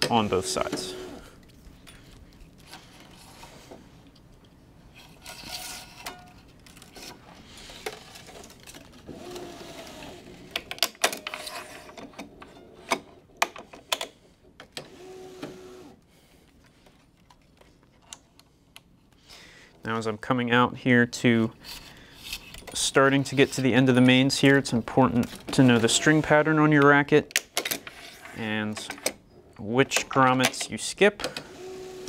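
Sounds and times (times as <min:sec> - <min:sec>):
motor whirring: 0:09.1 - 0:10.3.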